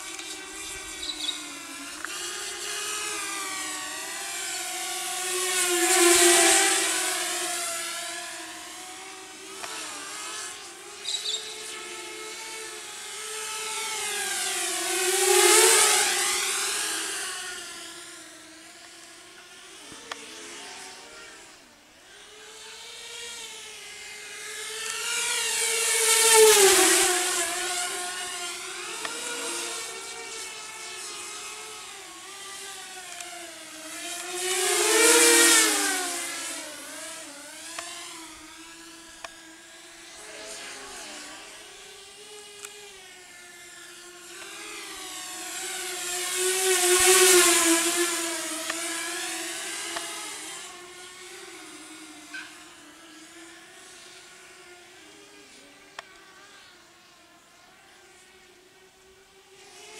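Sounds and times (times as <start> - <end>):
quadcopter propellers whining: 0.0 - 59.9.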